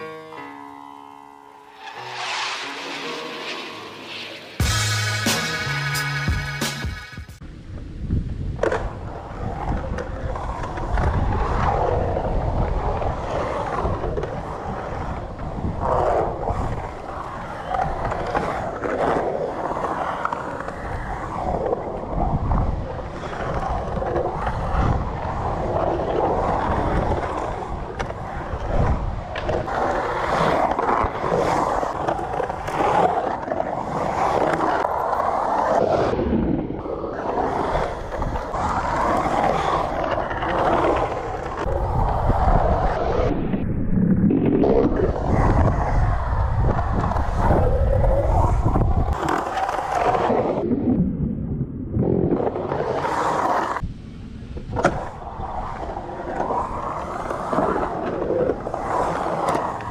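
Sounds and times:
skateboard wheels rolling on concrete: 0.0 - 59.9
skateboard clacks: 8.5 - 43.0, 44.5 - 50.6, 54.5 - 59.9.

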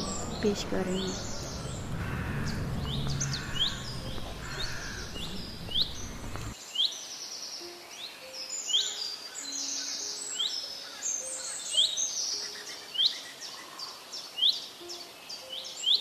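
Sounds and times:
low rumble: 0.0 - 6.6
birds chirping in chorus: 0.0 - 16.0.

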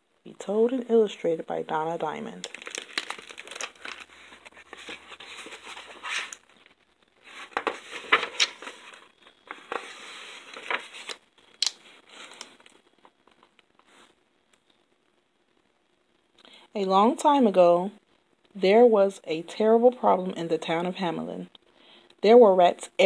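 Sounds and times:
book pages rustling and snapping: 2.4 - 13.9.

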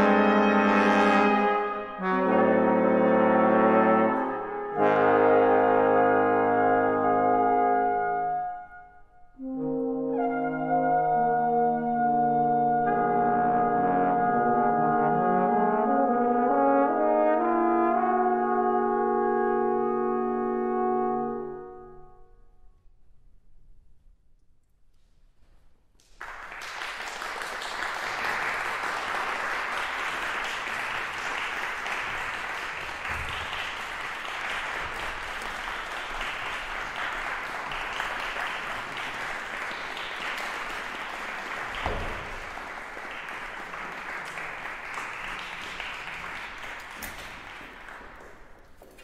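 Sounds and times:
audience applauding: 26.0 - 49.0.

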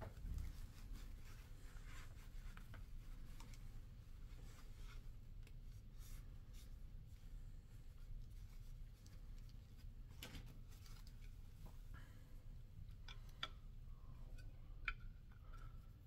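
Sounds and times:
towel rubbing: 0.1 - 7.2.

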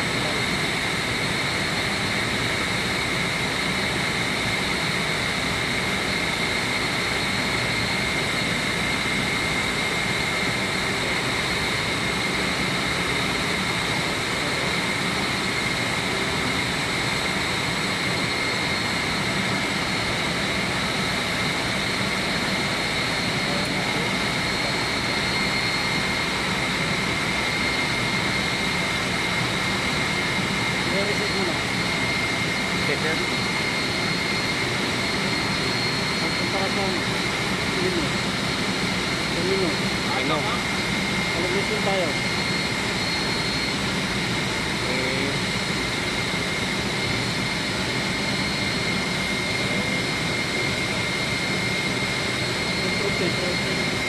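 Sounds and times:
chiller plant machinery noise: 0.0 - 54.0
high-pitched whines: 5.7 - 54.0.

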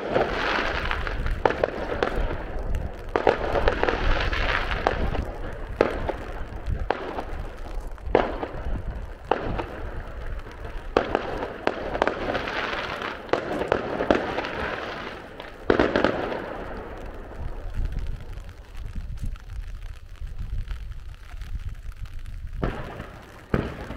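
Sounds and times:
fireworks bangs: 0.0 - 23.9
fireworks crackling: 0.0 - 23.9.

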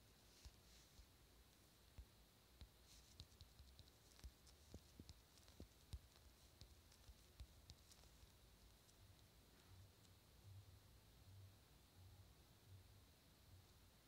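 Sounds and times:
fingers tapping phone touchscreen: 2.0 - 9.3.

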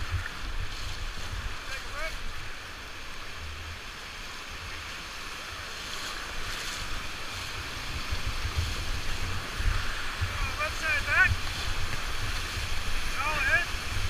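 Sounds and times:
wind buffeting microphone: 0.0 - 2.6, 5.5 - 14.0
whitewater rushing: 0.0 - 14.0.

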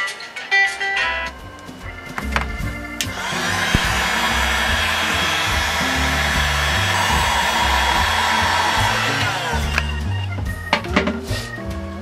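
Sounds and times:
background music with bass: 1.1 - 12.0
heat gun blowing: 3.1 - 10.0.

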